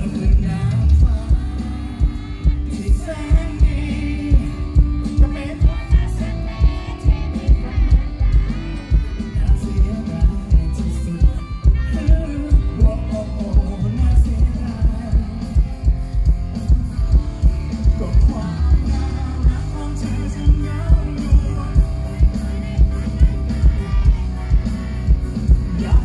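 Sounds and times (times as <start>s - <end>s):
heavy drum beat: 0.0s - 26.0s
live rock band: 0.0s - 26.0s
man singing: 0.0s - 26.0s.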